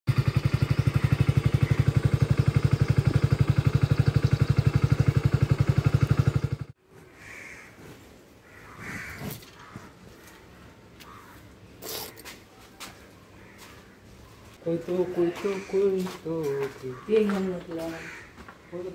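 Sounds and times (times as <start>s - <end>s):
small engine idling: 0.1s - 6.8s.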